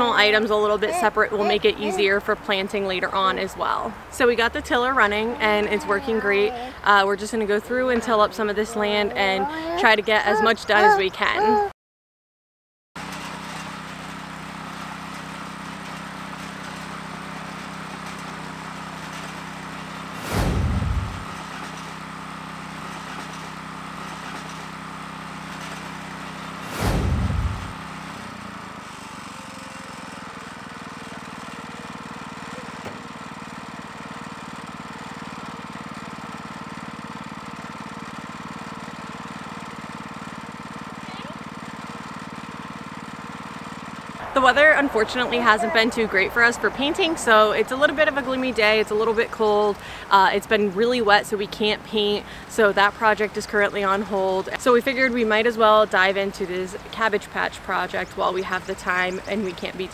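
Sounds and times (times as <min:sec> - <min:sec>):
tiller engine running: 0:13.0 - 0:59.9
loud low thumps: 0:20.2 - 0:21.3, 0:26.7 - 0:27.8.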